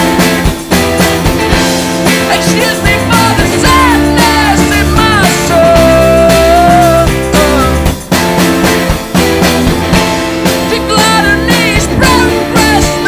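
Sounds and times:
rock band with drum beat: 0.0 - 13.0
man singing: 2.3 - 8.0, 10.7 - 13.0.

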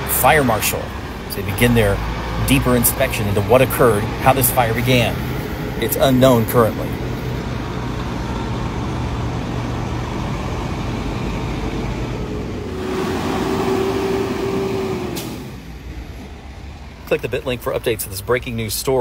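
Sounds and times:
diesel trucks driving past: 0.0 - 19.0
truck engine whine: 0.0 - 19.0.

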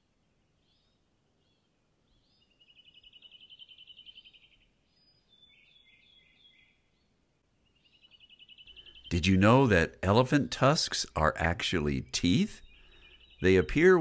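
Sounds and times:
birds chirping: 0.0 - 14.0
bird trill: 0.6 - 10.0, 12.3 - 14.0.

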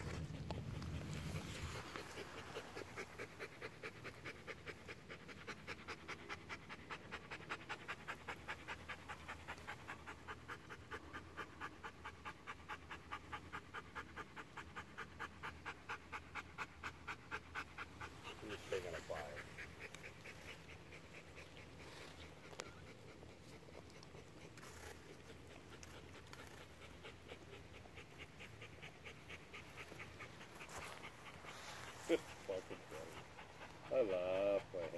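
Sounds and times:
dog panting: 0.0 - 34.9.

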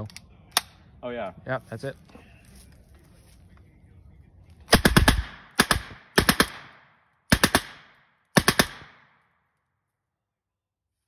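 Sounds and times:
gunfire echo: 4.7 - 9.3.

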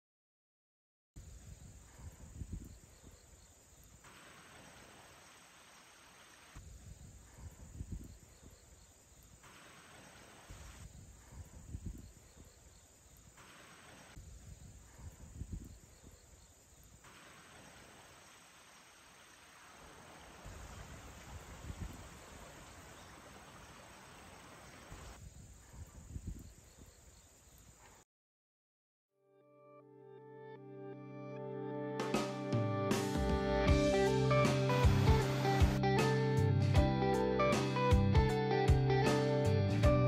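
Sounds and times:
insects chirping: 1.2 - 28.0.

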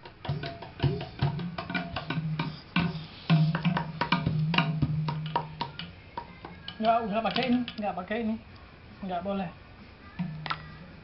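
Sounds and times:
bamboo zither struck in rhythm: 0.0 - 8.0.

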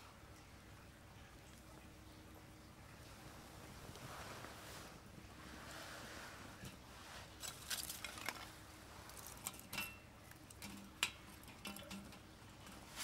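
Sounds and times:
objects being handled: 6.5 - 13.0.

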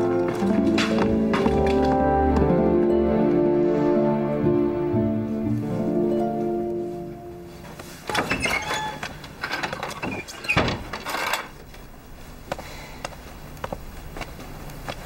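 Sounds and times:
footsteps: 0.0 - 3.4, 5.2 - 8.2, 11.6 - 15.0
wooden door creaking and clattering: 8.0 - 11.6.

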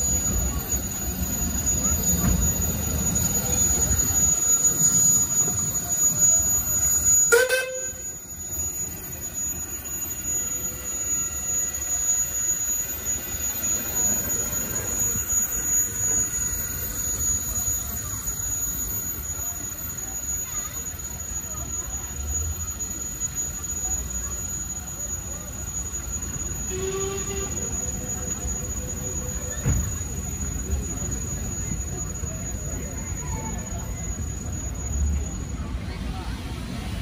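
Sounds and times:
steam roller engine rumble: 0.0 - 37.0
steam whistle toot: 1.6 - 8.7, 26.3 - 28.5.

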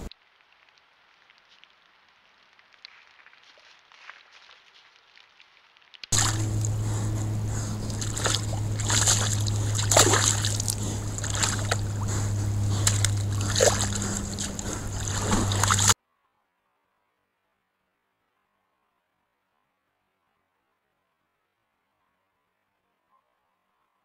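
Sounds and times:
deer splashing in water: 6.1 - 16.0
camera low hum: 6.2 - 16.0.

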